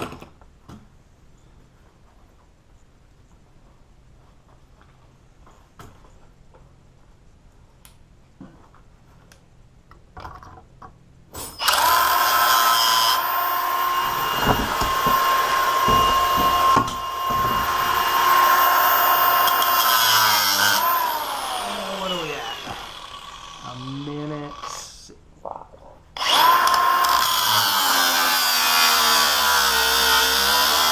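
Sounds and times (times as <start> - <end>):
angle grinder cutting chain: 11.4 - 24.8, 26.2 - 30.9.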